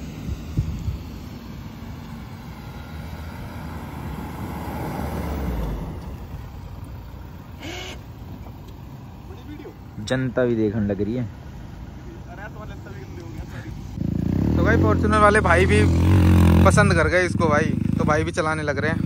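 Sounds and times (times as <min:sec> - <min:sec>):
atv engine running: 0:05.1 - 0:19.0.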